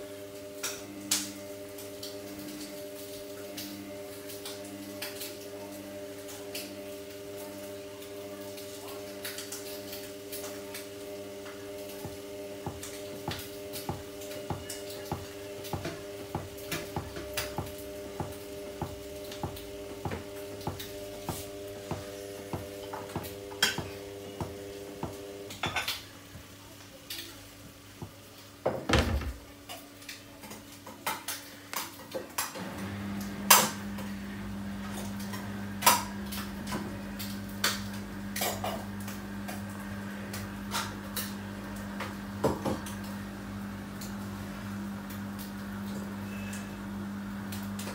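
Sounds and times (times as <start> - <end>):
washing machine motor whine: 0.0 - 30.8, 32.3 - 47.9
washing machine low hum: 0.0 - 47.9.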